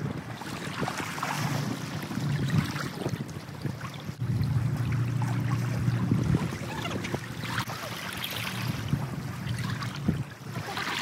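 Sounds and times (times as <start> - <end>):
low steady drone: 4.2 - 7.6
small waves lapping on rocks: 5.2 - 11.0.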